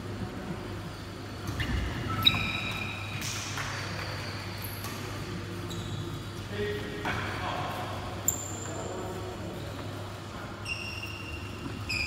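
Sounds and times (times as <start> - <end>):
sneakers squeaking on floor: 1.3 - 6.4, 8.2 - 12.0.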